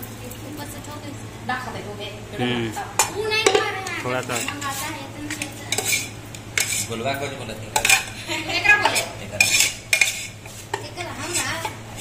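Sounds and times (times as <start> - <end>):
metal utensil scraping steel bowl: 4.2 - 12.0.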